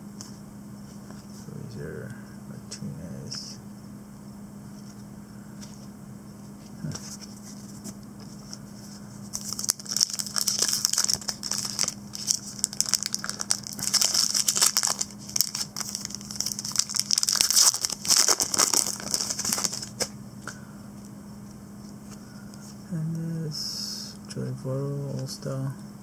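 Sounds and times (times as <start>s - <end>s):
low steady hum: 0.0s - 26.0s
foil wrapper crinkling: 9.3s - 20.1s.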